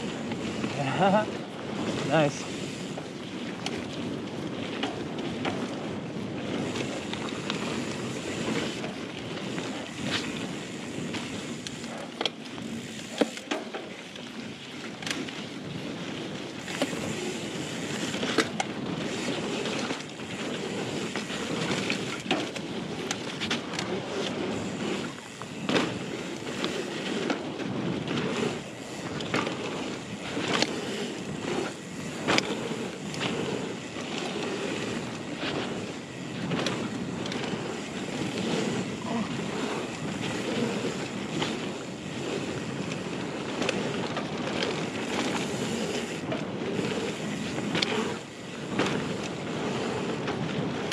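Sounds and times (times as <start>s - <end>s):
bike rattling over bumps: 0.0s - 50.9s
bike tyres rolling on dirt: 0.0s - 50.9s.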